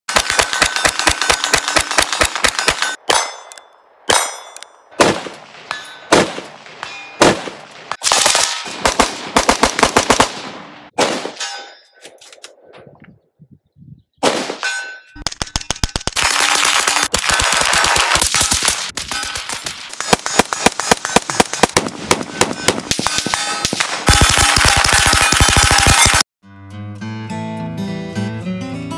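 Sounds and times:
gunshots: 0.1s - 3.3s, 5.0s - 11.5s, 14.2s - 26.3s
steel targets ringing: 2.5s - 4.9s, 5.6s - 6.2s, 6.8s - 7.2s, 11.3s - 12.0s, 14.6s - 15.2s, 22.2s - 26.2s.

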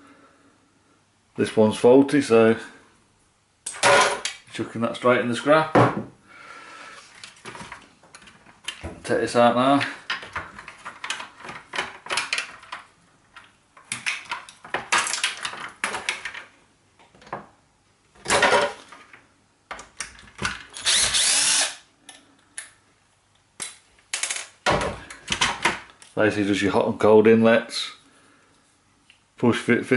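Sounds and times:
plastic parts clattering: 9.7s - 17.4s, 18.2s - 21.2s, 23.6s - 26.2s
power screwdriver whirring: 20.8s - 21.8s.

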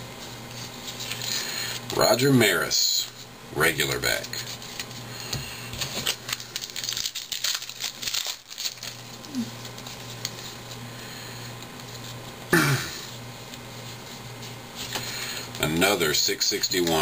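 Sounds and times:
trading cards being shuffled: 0.2s - 2.1s, 3.8s - 12.4s, 13.4s - 16.0s, 16.6s - 17.0s
foil wrapper crinkling and tearing: 5.7s - 10.8s.

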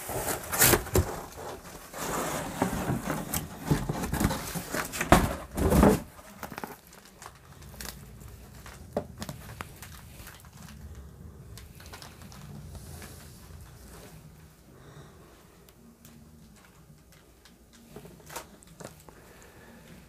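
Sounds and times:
cardboard box scraping and crinkling: 0.0s - 6.9s.

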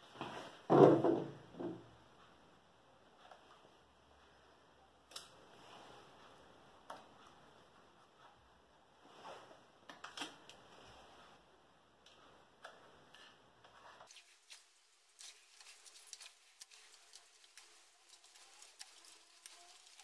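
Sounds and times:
tape ticks and rustles: 12.0s - 20.0s.

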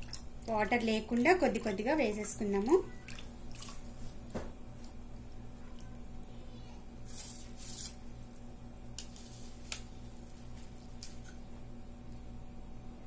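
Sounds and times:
gravy boiling in a pot: 0.0s - 7.0s.

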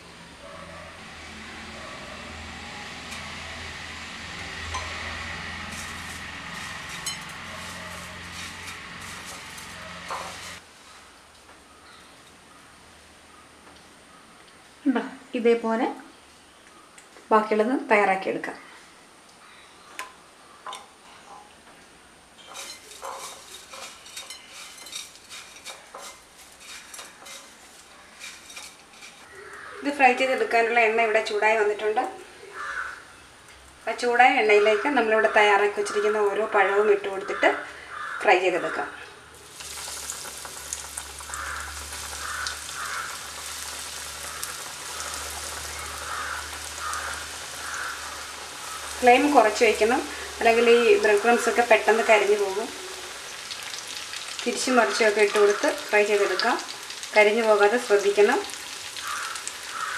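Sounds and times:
cornflakes crackling and rustling: 5.6s - 10.6s, 22.5s - 29.7s, 39.4s - 59.9s.

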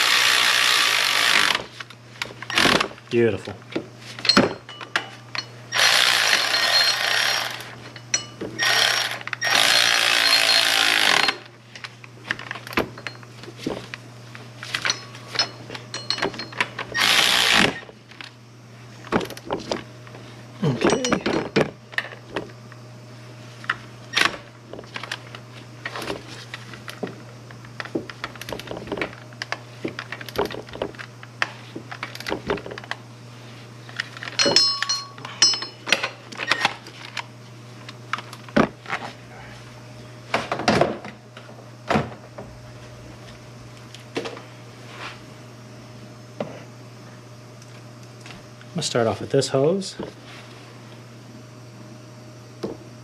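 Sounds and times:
electric ratchet running: 0.0s - 1.7s, 2.5s - 2.9s, 5.3s - 11.5s, 14.9s - 17.9s
tool and hardware clatter: 4.1s - 14.0s, 14.6s - 17.8s, 20.6s - 22.5s, 33.9s - 37.2s
low hum: 33.9s - 36.1s.

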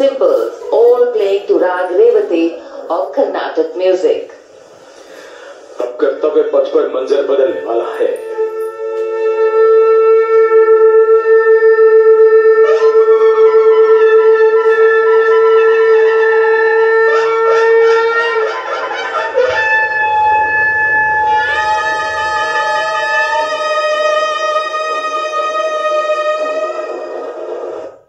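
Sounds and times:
wind instrument holding notes: 6.5s - 28.0s.

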